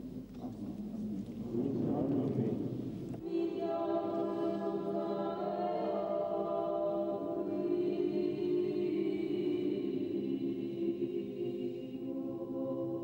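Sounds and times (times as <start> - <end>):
choir singing chant: 3.2 - 13.0.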